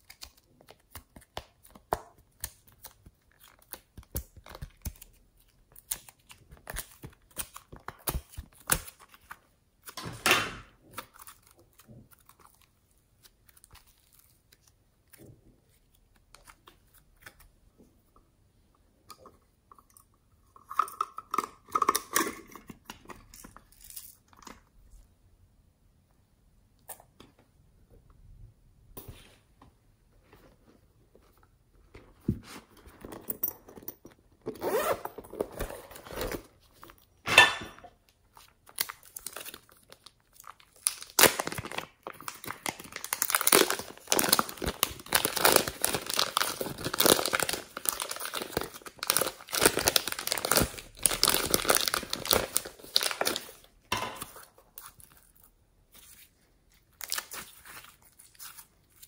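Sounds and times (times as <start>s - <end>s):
plastic pouch crinkling: 38.3s - 59.0s.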